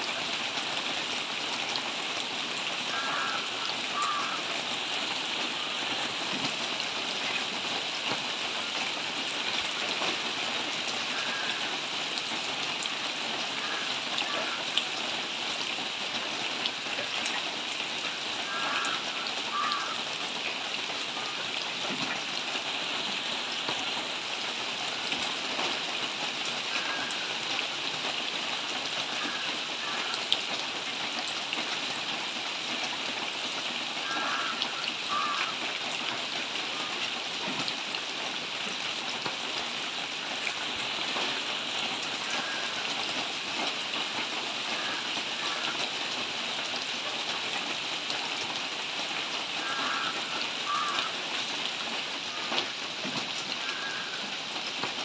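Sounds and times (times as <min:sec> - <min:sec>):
rain falling on trees: 0:00.0 - 0:55.0.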